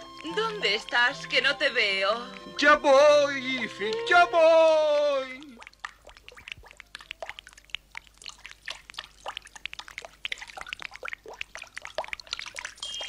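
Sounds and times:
cartoon rain drops plinking: 0:00.0 - 0:02.6, 0:08.9 - 0:13.0.

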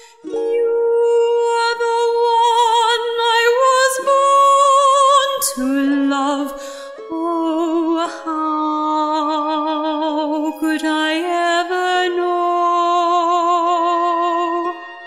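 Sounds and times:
soft sustained accompaniment: 0:00.0 - 0:15.0
woman singing with vibrato: 0:00.0 - 0:15.0.

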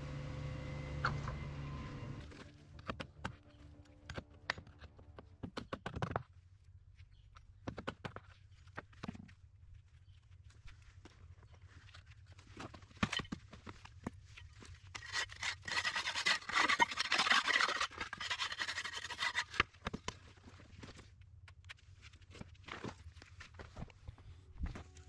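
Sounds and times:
trowel scraping wet concrete: 0:15.0 - 0:19.7.

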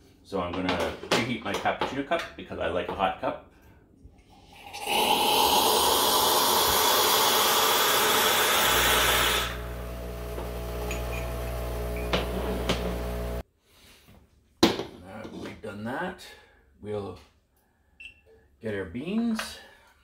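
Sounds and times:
hot water hissing and sputtering: 0:04.3 - 0:13.4
pump humming: 0:05.5 - 0:13.4.

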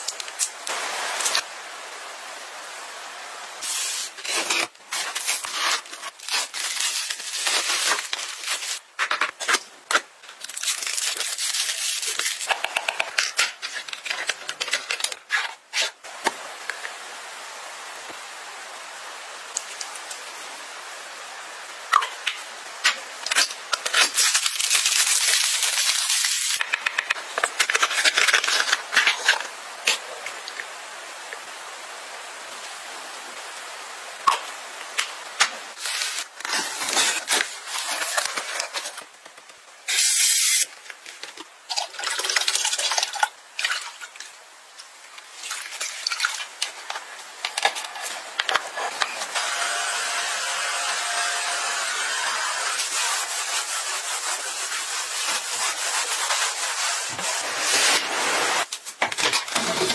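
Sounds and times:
spray bottle hissing: 0:39.9 - 0:40.6.

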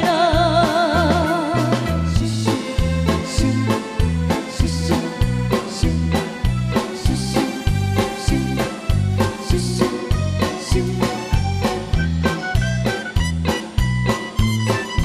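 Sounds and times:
bass notes: 0:00.0 - 0:15.0
guitar: 0:00.0 - 0:15.0
keyboard: 0:00.0 - 0:15.0.

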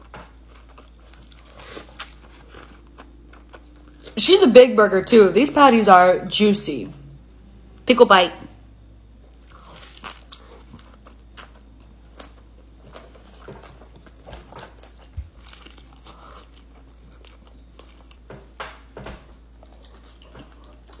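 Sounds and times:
person chewing food: 0:00.0 - 0:04.2, 0:09.1 - 0:18.3, 0:19.4 - 0:21.0.

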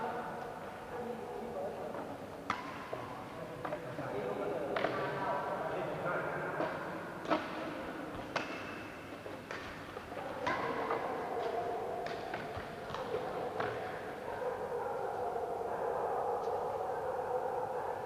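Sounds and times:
rackets hitting shuttlecock: 0:02.4 - 0:03.8, 0:04.7 - 0:05.1, 0:06.6 - 0:14.1.

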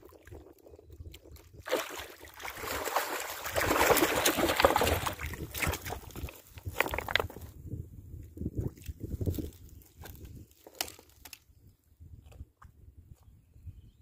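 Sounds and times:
fish thrashing and splashing: 0:01.3 - 0:07.2.

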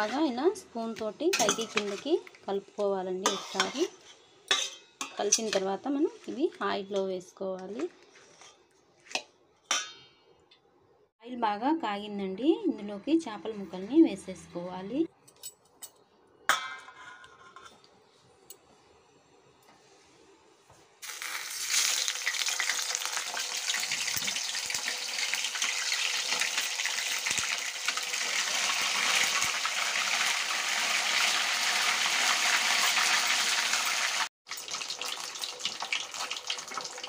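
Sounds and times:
fish sizzling in hot oil: 0:21.0 - 0:37.0.

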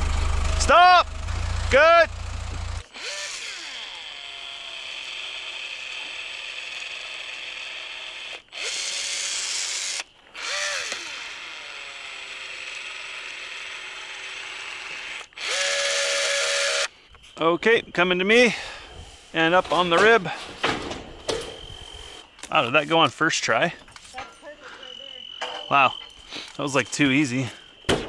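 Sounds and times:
power drill driving screws: 0:02.7 - 0:16.9.

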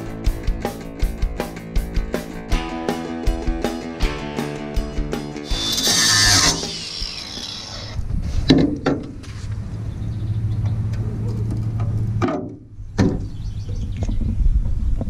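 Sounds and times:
low hum: 0:05.5 - 0:08.1.

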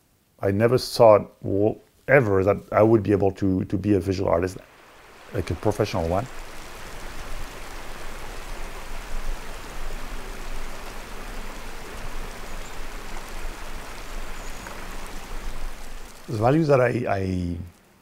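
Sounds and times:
rushing outdoor ambience: 0:04.0 - 0:18.0.

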